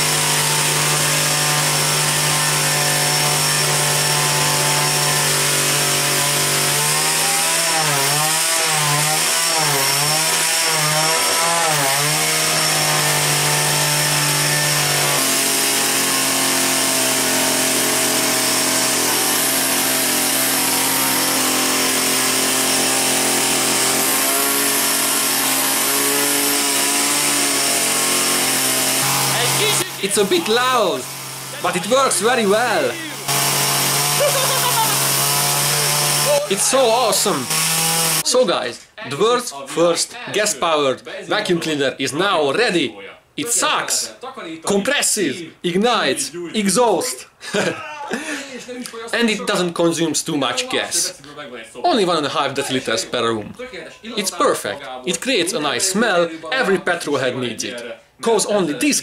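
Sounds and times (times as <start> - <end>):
small petrol engine running: 13.9 - 38.2.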